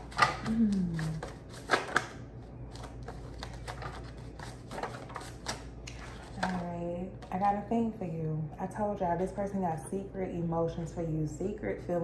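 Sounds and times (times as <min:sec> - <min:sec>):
cards being shuffled: 0:00.0 - 0:06.7
woman speaking: 0:06.4 - 0:12.0.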